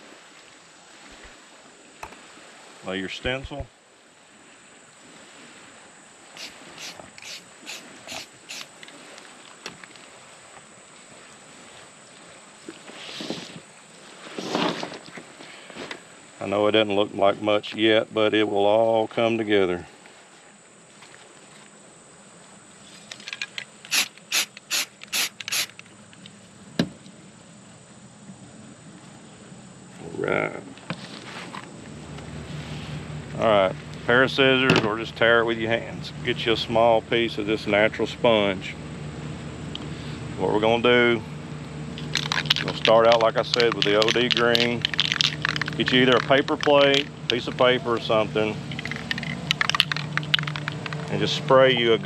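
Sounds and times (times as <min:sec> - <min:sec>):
insects droning: 0:00.0 - 0:52.0
spray paint hissing bursts: 0:06.4 - 0:08.7, 0:23.9 - 0:25.7
sharp click: 0:23.4 - 0:25.9
light clicks: 0:48.6 - 0:51.2.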